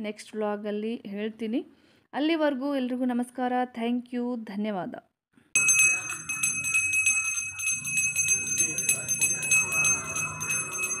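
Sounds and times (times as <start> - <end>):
small hand bell ringing rapidly: 5.6 - 11.0.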